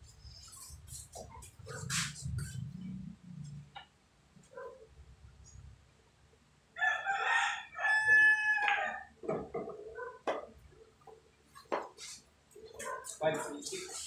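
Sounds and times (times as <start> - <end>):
rooster crowing: 6.8 - 9.1.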